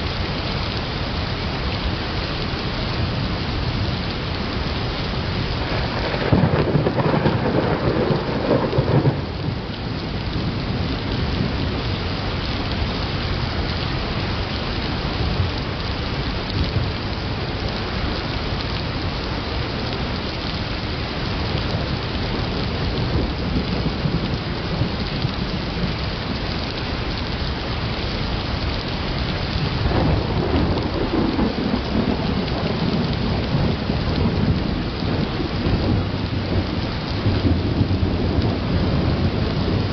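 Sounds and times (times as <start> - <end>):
steady rain: 0.0 - 39.9
thunder rumbling: 3.6 - 14.3, 21.1 - 39.9.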